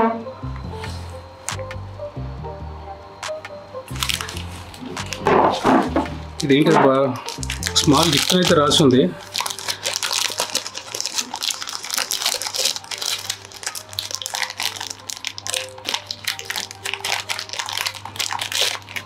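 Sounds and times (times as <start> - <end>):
soft background music: 0.0 - 19.0
plastic packaging crinkling: 3.9 - 19.0.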